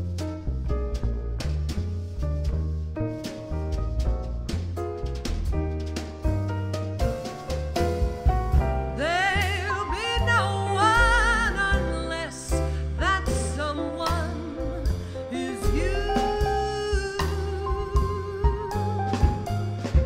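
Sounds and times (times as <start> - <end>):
drum kit: 0.0 - 20.0
piano: 0.0 - 20.0
upright bass: 0.0 - 20.0
woman singing with vibrato: 9.0 - 18.8.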